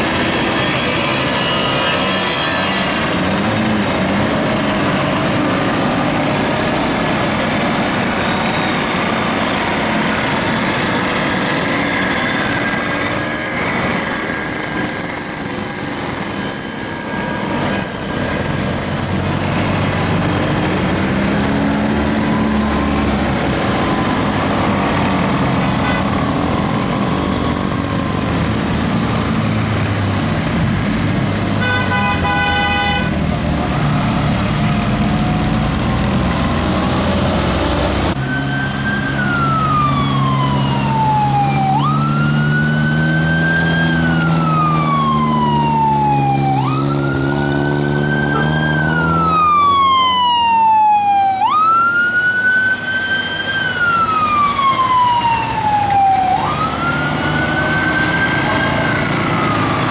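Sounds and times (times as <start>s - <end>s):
vehicle siren wailing: 0.0s - 5.8s, 6.7s - 20.0s, 20.6s - 29.3s, 34.8s - 59.9s
passing traffic engines: 0.0s - 59.9s
steady horn blast: 0.1s - 3.4s, 25.8s - 26.4s, 31.6s - 33.3s.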